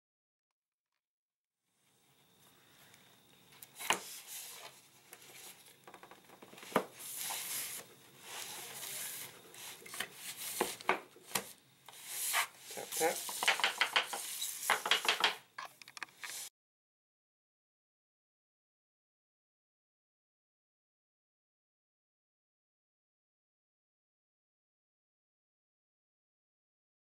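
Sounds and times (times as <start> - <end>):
sharp clicks and knocks: 13.4 - 16.4.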